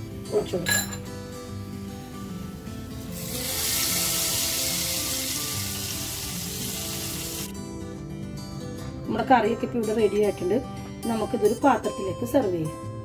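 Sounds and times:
hot oil sizzling: 0:01.7 - 0:07.5.

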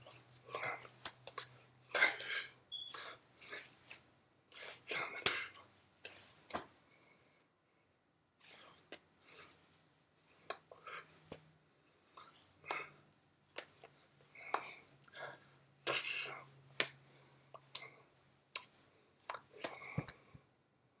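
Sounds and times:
breathy mouth noises: 0:00.0 - 0:06.3
hands clicking and tapping: 0:00.8 - 0:01.5, 0:19.3 - 0:20.4.

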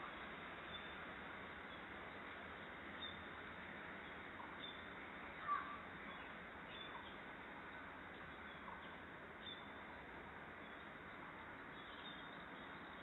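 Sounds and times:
outdoor background hiss: 0:00.0 - 0:13.0
distant bird chirps: 0:04.0 - 0:09.9.

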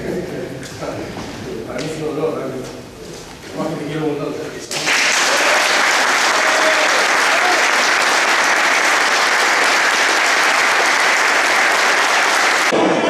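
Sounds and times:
group of people applauding: 0:04.7 - 0:13.0.

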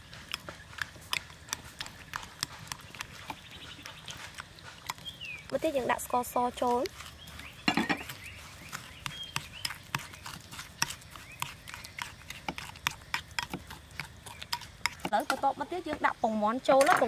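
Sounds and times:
spoon scraping ceramic bowl: 0:06.8 - 0:08.3, 0:09.0 - 0:15.5.

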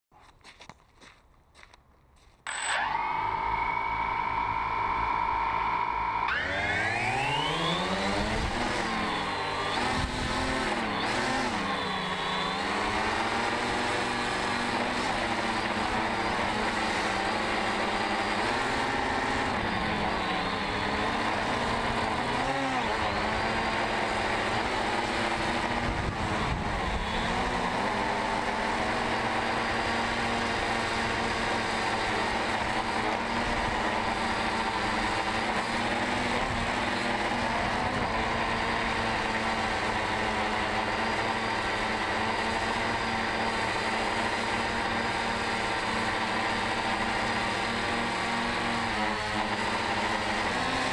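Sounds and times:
drone propellers buzzing: 0:02.5 - 0:50.9.

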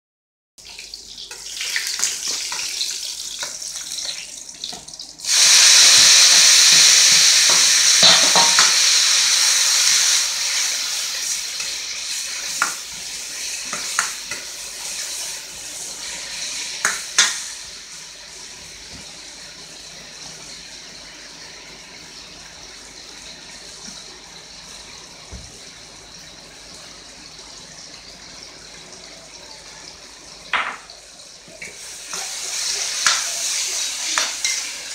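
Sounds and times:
food sizzling in a wok: 0:00.6 - 0:34.9.

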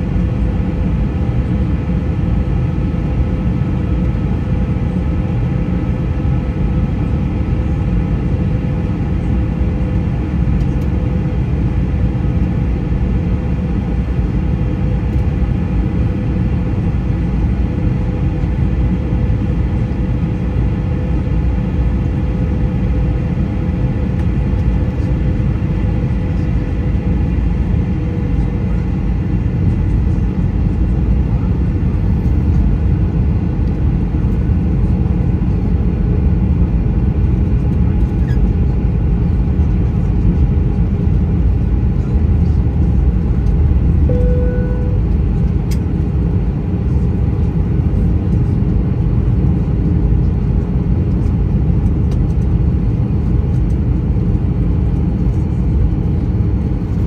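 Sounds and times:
airliner cabin engine rumble: 0:00.0 - 0:57.0
brief tone: 0:44.0 - 0:45.2.

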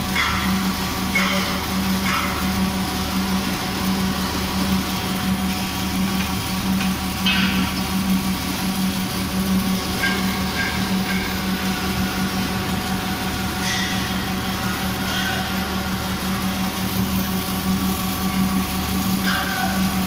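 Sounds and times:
low machine hum: 0:00.0 - 0:20.0
welding arc hiss and crackle: 0:00.0 - 0:20.0.

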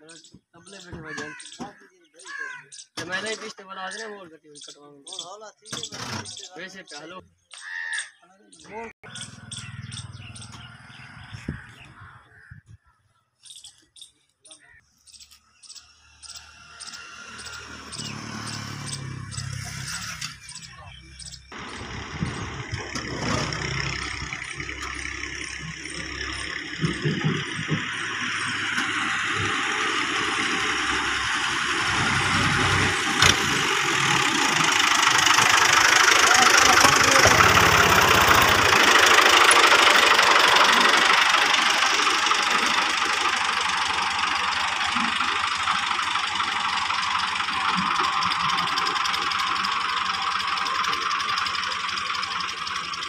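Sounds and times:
diesel tractor engine passing: 0:09.0 - 0:12.2, 0:15.7 - 0:53.0.

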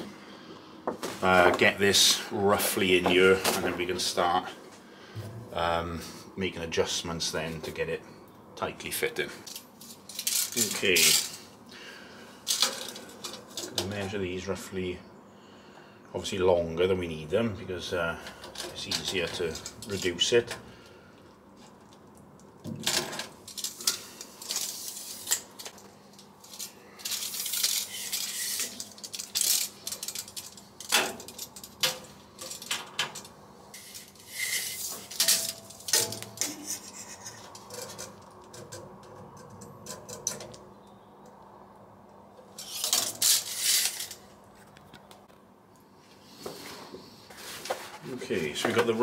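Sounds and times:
tape measure clicks and clatter: 0:09.5 - 0:11.4, 0:23.5 - 0:38.8, 0:42.6 - 0:44.3.

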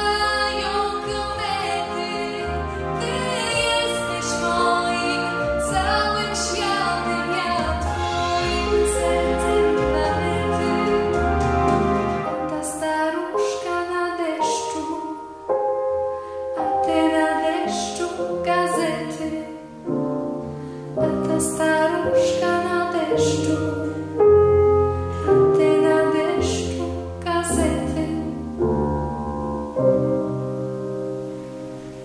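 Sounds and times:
woman singing a ballad: 0:00.0 - 0:11.4, 0:12.2 - 0:15.4, 0:16.6 - 0:19.8, 0:21.0 - 0:24.4, 0:25.0 - 0:28.6
piano accompaniment: 0:00.0 - 0:32.0.

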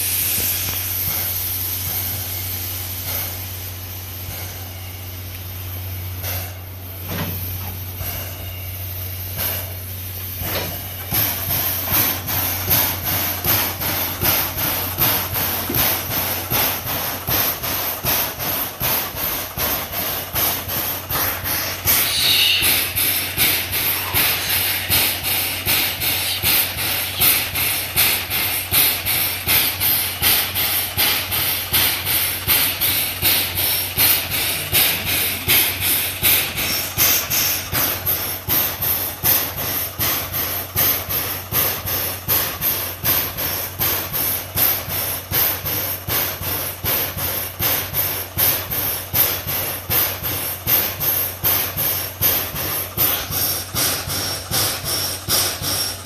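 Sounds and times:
constant low hum: 0:00.0 - 0:40.5
locomotive air pump panting: 0:00.0 - 0:56.0.

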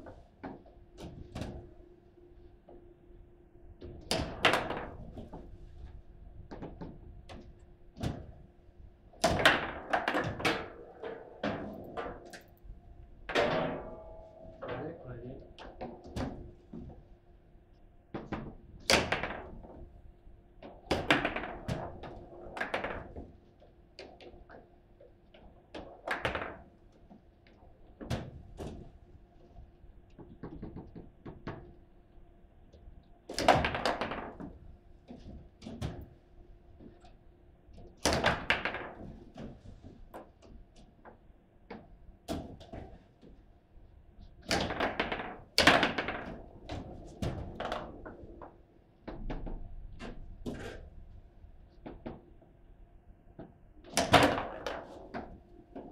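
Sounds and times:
foosball ball and rods knocking: 0:03.8 - 0:05.5, 0:09.2 - 0:12.6, 0:13.2 - 0:14.9, 0:15.5 - 0:17.0, 0:18.2 - 0:19.8, 0:20.6 - 0:23.4, 0:25.4 - 0:28.9, 0:30.1 - 0:31.8, 0:33.3 - 0:36.2, 0:37.8 - 0:40.3, 0:44.4 - 0:50.9, 0:53.4 - 0:55.9.

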